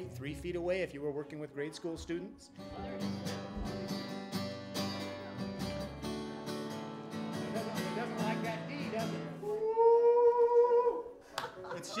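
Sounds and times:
acoustic guitar strumming: 2.6 - 9.4.

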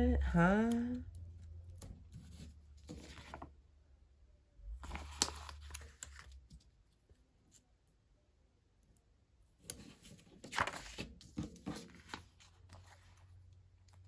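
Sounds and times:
paper stickers peeling and rustling: 1.6 - 3.5, 4.8 - 6.8, 9.7 - 13.2.

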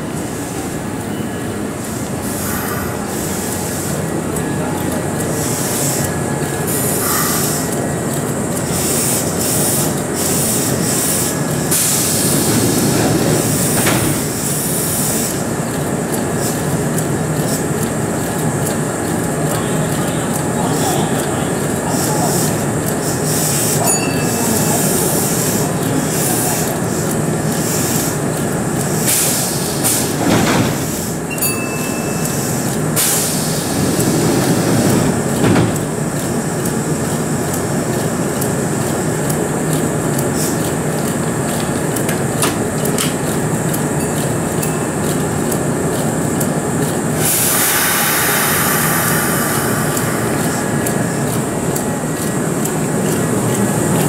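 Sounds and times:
electric train humming: 0.0 - 54.0
compressed air hiss: 6.7 - 7.7, 8.7 - 15.5, 29.0 - 31.2, 32.3 - 35.0, 47.2 - 52.0.

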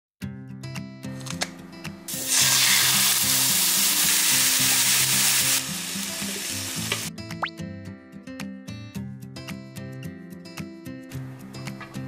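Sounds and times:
food sizzling in frying pan: 2.1 - 7.1.

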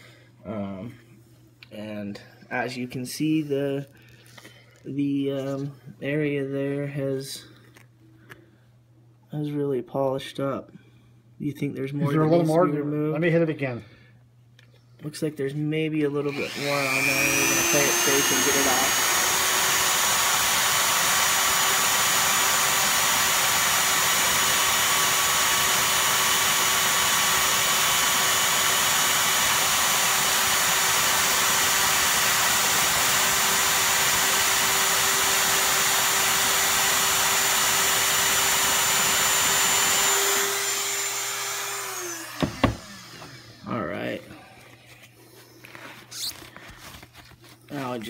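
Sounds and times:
rotary tool whining: 16.3 - 43.7.

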